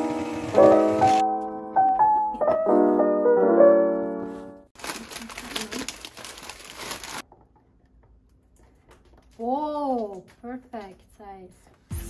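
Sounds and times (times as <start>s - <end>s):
soft piano music: 0.0s - 4.8s
plastic wrapper crinkling: 4.8s - 7.4s.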